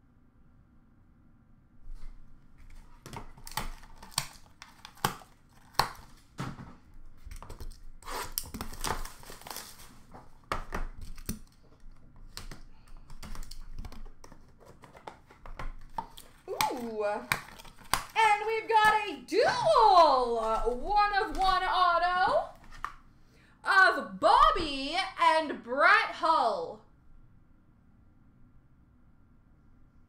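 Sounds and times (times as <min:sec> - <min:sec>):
packaging tearing and rustling: 0:02.0 - 0:06.4, 0:07.1 - 0:19.0, 0:22.5 - 0:23.0
cardboard and plastic clicks: 0:10.4 - 0:18.2.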